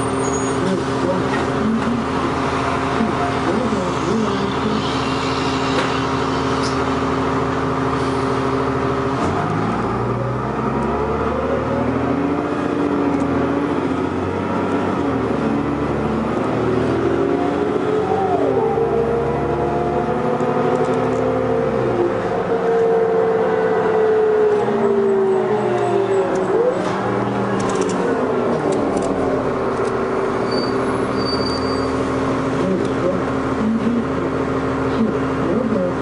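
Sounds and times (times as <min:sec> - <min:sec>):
bus engine pulling away: 0:00.0 - 0:36.0
transmission shifting gears: 0:18.8 - 0:22.0.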